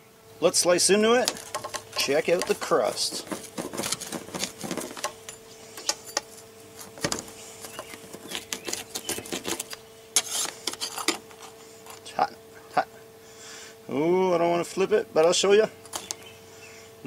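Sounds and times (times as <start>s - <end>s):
pizza cutter clicking and crunching: 1.1s - 11.6s.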